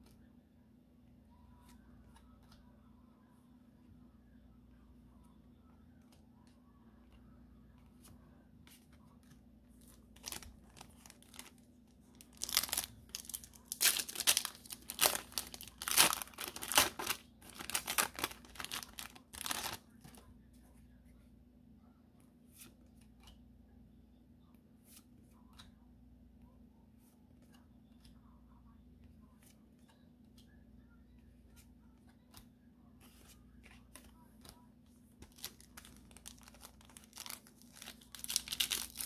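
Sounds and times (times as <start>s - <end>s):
foil wrapper tearing and crinkling: 12.2s - 19.8s, 35.3s - 39.0s.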